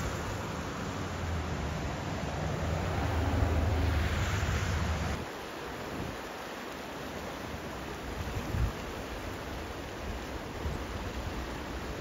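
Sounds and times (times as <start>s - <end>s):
river water rushing: 0.0s - 12.0s
wind rumbling on microphone: 8.2s - 9.0s.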